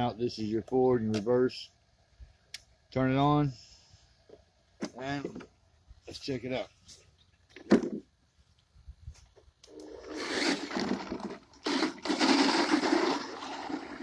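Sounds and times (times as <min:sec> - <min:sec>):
toy truck electric motor running: 0:09.7 - 0:14.0.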